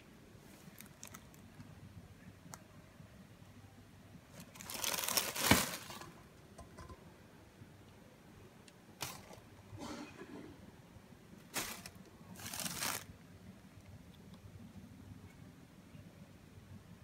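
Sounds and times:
plastic bag crinkling: 0.6 - 1.4, 4.4 - 6.2, 11.5 - 13.1.

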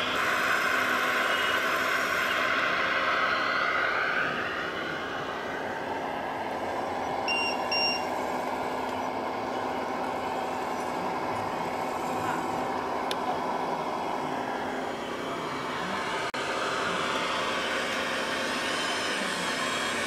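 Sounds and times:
model vehicle motors humming: 0.0 - 2.9, 4.2 - 20.0
short high electronic beeps: 7.3 - 8.1.

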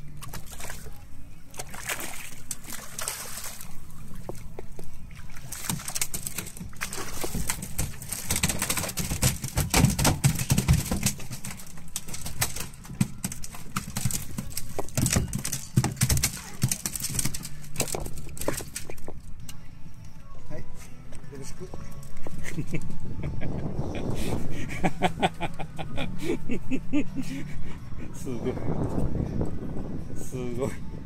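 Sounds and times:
water sloshing against boat: 0.0 - 19.4.

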